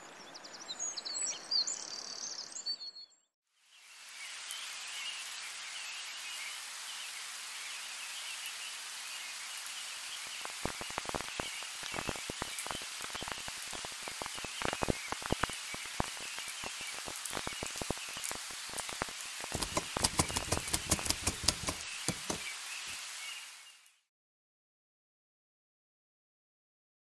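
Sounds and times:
vinyl record crackles and pops: 9.2 - 24.0.

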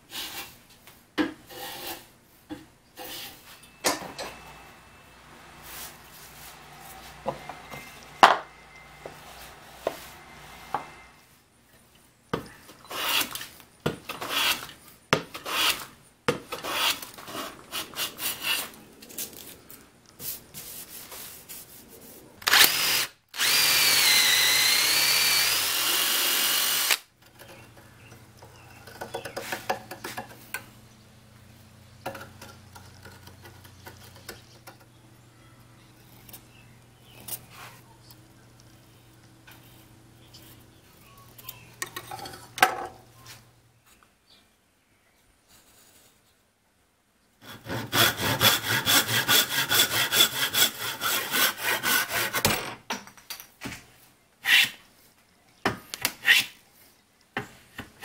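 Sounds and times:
scraping on wood: 1.2 - 3.6, 27.3 - 30.7
electric drill boring into wood: 22.4 - 27.1.

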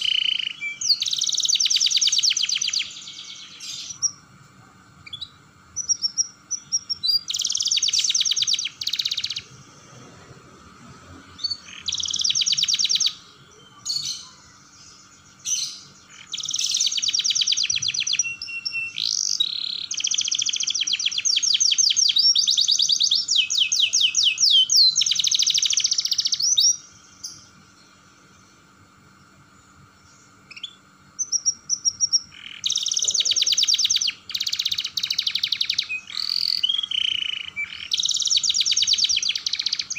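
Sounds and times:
canary trilling: 0.0 - 4.3, 5.0 - 9.7, 11.3 - 27.6, 30.4 - 39.9.

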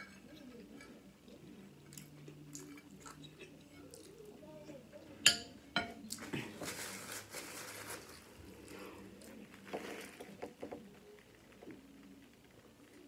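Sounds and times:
chewing and mouth noises: 1.9 - 4.3
paper napkin crackling: 6.3 - 10.4.

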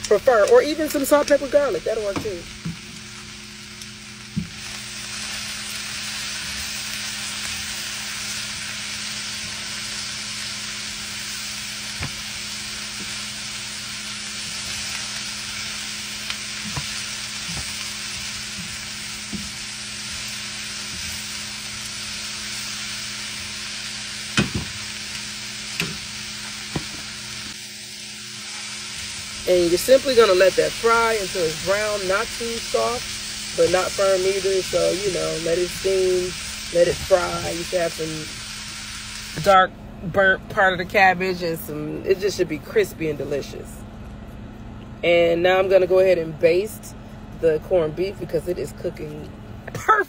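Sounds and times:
vegetables sizzling in a skillet: 0.0 - 39.7.

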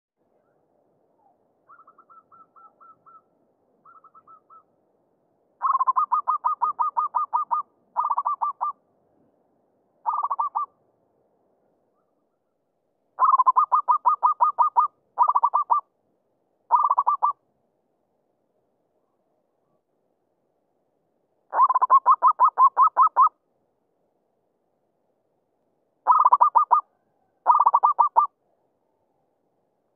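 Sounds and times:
doves cooing: 5.6 - 8.8, 10.0 - 10.7, 13.2 - 15.8, 16.7 - 17.3, 21.5 - 23.3, 26.0 - 28.3.

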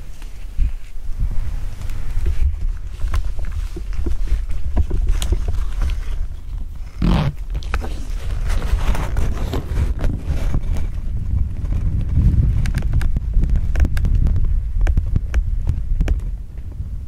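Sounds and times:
fabric window rustling and unzipping: 0.0 - 14.0
wind rumbling on microphone: 0.0 - 17.0.

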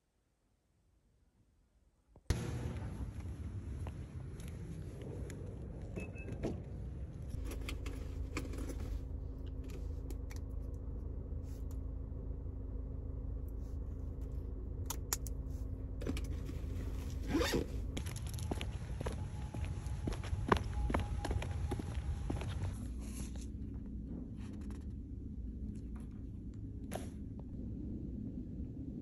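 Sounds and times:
steady low hum: 2.2 - 29.0
handling clicks and rustles: 4.3 - 11.0, 13.8 - 19.3.

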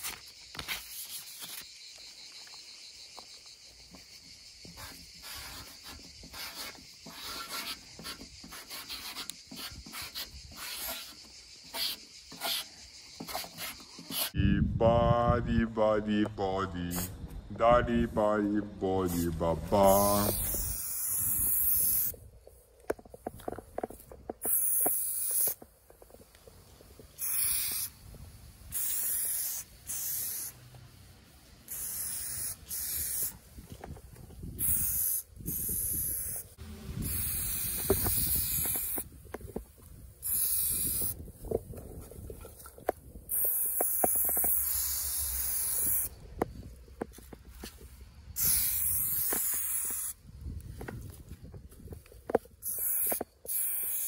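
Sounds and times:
spray paint can spraying: 0.0 - 1.7, 4.7 - 14.4, 16.9 - 17.2, 19.0 - 22.2, 24.4 - 25.6, 27.1 - 28.0, 28.6 - 30.6, 31.6 - 33.6, 34.5 - 39.2, 40.2 - 41.2, 43.3 - 46.2, 48.4 - 50.2, 52.6 - 54.0.

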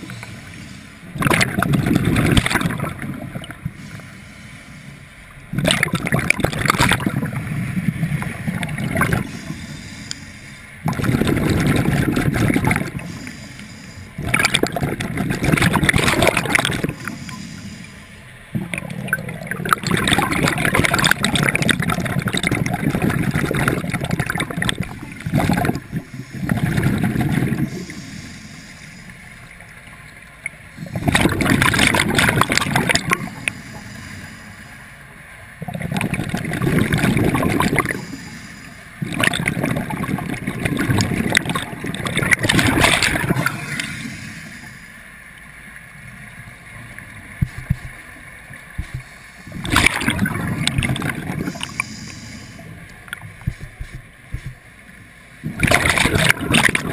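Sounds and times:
diver breathing through regulator: 0.0 - 1.4, 3.6 - 5.7, 8.9 - 19.0, 23.3 - 29.4, 32.4 - 35.1, 36.7 - 39.7, 42.4 - 45.2, 48.8 - 53.7
gurgling exhaled bubbles: 1.1 - 3.8, 5.5 - 9.6, 10.8 - 13.2, 14.2 - 17.4, 18.5 - 28.1, 30.8 - 33.8, 35.6 - 38.2, 39.0 - 44.7, 48.8 - 52.4, 55.4 - 56.9.

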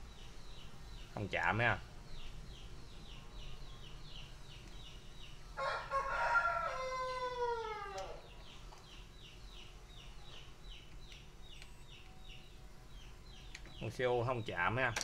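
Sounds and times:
rooster crowing: 5.6 - 8.3
faint high chirps: 7.6 - 14.6.

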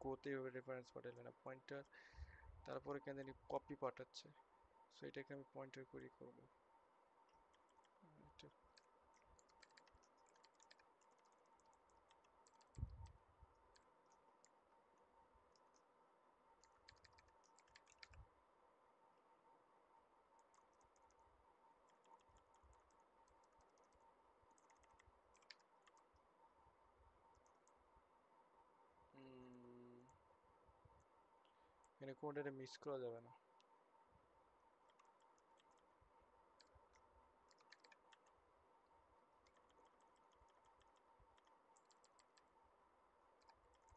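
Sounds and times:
faint steady hum: 0.0 - 43.9
keyboard typing: 8.7 - 14.6, 16.6 - 18.2, 21.8 - 26.1, 34.8 - 35.9, 36.6 - 38.4, 39.4 - 42.5, 43.4 - 43.9.

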